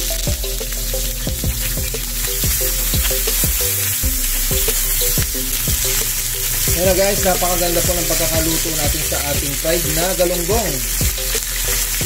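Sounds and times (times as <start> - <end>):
background music with steady beat: 0.0 - 12.0
fish sizzling in hot oil: 0.0 - 12.0.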